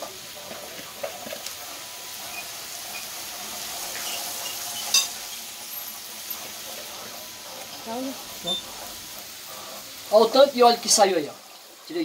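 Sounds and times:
meat sizzling on steel disc: 0:00.0 - 0:12.0
sharp metal clank: 0:04.9 - 0:05.2.

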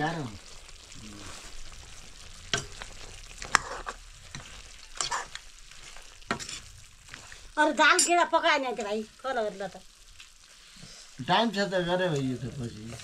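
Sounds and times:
curry sizzling in a wok: 0:00.0 - 0:13.0
metal ladle scraping a pan: 0:02.5 - 0:08.2.

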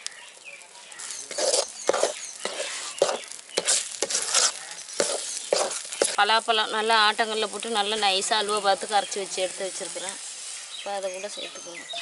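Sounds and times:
metal ladle scraping pan: 0:01.0 - 0:06.2.

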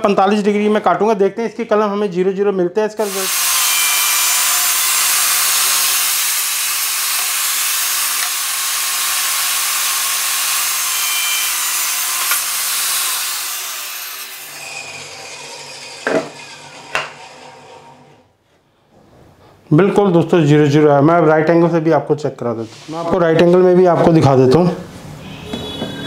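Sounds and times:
saw winding down: 0:03.0 - 0:18.2
table saw cutting wood: 0:03.0 - 0:18.3.

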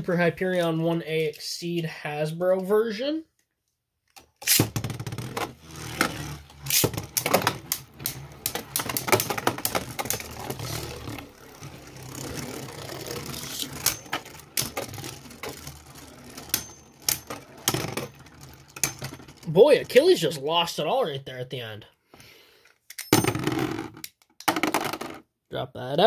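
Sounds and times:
plastic tops clacking: 0:04.2 - 0:19.5
spinning tops whirring: 0:04.4 - 0:20.3.

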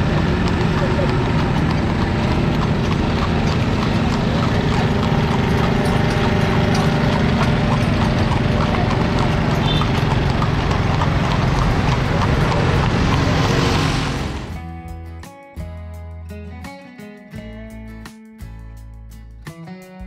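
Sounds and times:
horse hooves clip-clopping on pavement: 0:00.0 - 0:14.6.

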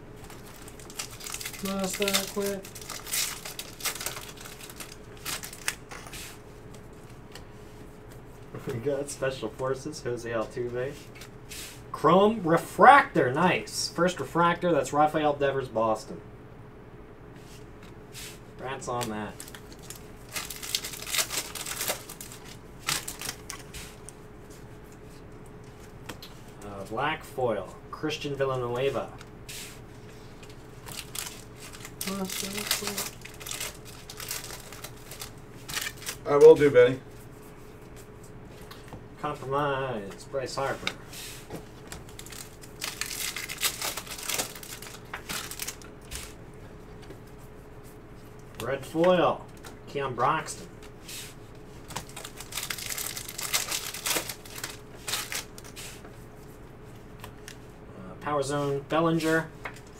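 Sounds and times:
foil wrapper tearing open: 0:00.2 - 0:05.9, 0:19.4 - 0:23.7, 0:30.8 - 0:36.4, 0:42.0 - 0:46.3, 0:51.9 - 0:55.8
cards rustling: 0:00.2 - 0:07.5, 0:18.9 - 0:24.2, 0:28.7 - 0:39.0, 0:40.6 - 0:46.4, 0:50.8 - 0:56.1
handling of cards: 0:00.2 - 0:08.8, 0:17.8 - 0:26.7, 0:28.7 - 0:39.0, 0:40.6 - 0:48.7, 0:50.7 - 0:57.6.

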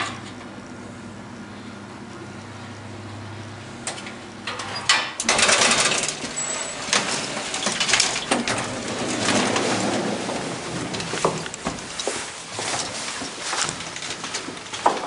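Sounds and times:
sliding elevator door opening: 0:03.8 - 0:14.9
metal lattice gate rattling: 0:04.5 - 0:15.0.

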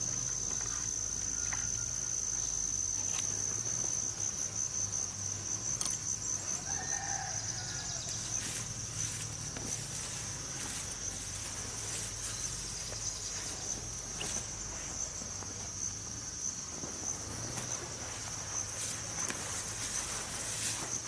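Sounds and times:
insects trilling: 0:00.0 - 0:21.0
leafy plants rustling: 0:05.7 - 0:21.0.

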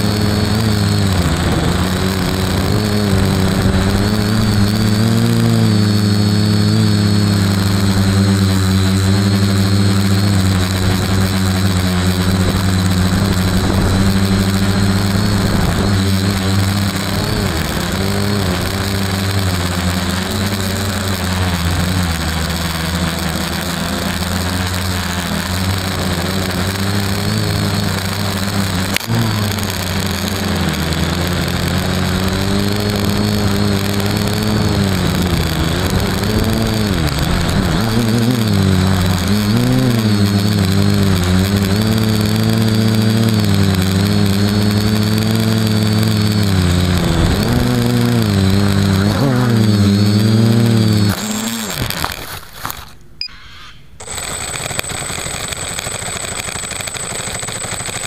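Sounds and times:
quadcopter motors buzzing: 0:00.0 - 0:58.0.

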